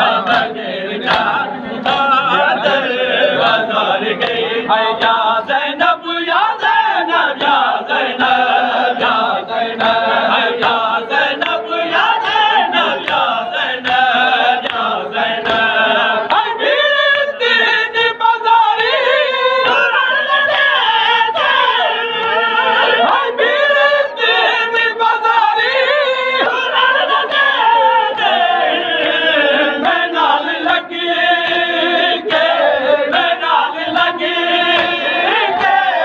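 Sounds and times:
men chanting in unison: 0.0s - 36.0s.

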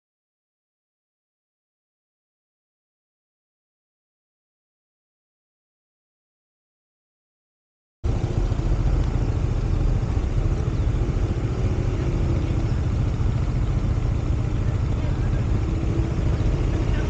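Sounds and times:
scooter engine running: 8.1s - 17.0s.

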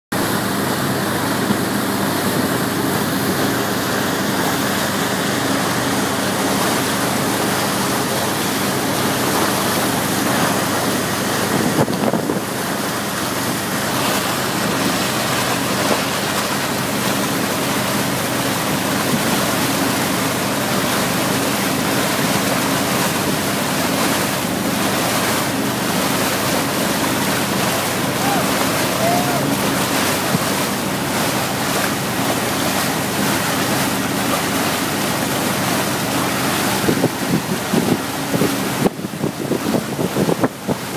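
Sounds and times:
boat engine humming: 0.1s - 40.9s
boat wake rushing and churning: 0.1s - 40.9s
wind buffeting microphone: 11.2s - 12.7s, 36.7s - 40.9s.

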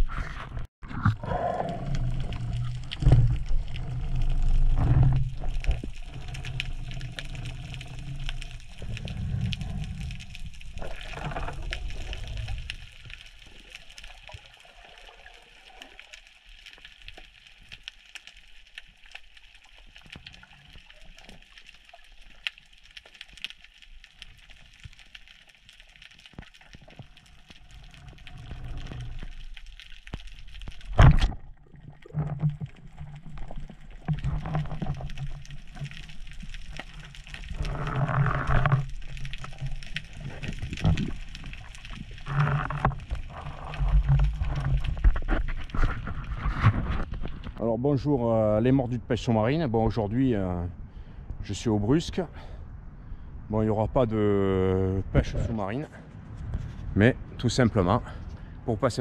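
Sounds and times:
muffled underwater rumble: 0.0s - 17.7s, 26.0s - 59.0s.

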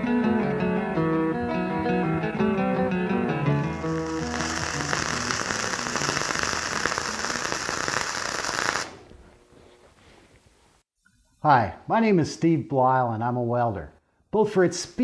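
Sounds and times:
acoustic guitar tune: 0.0s - 6.2s
welding arc crackling: 3.7s - 9.1s.

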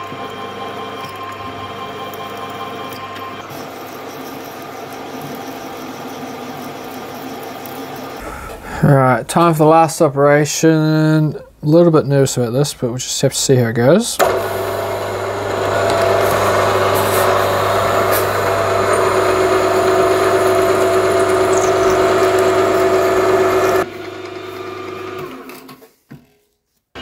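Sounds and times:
milling machine spindle whine: 0.0s - 8.9s, 14.2s - 25.4s.

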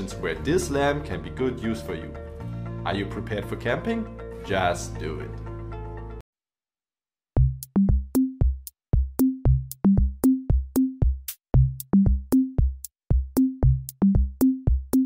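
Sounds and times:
electronic music with drum beat: 7.4s - 15.0s.

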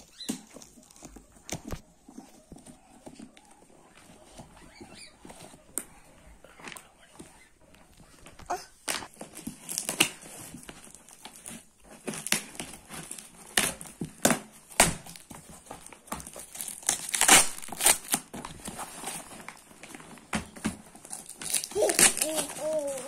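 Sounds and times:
plastic crinkling and tearing: 8.9s - 23.0s
knife slicing plastic wrapping: 16.1s - 18.4s, 21.0s - 23.0s.

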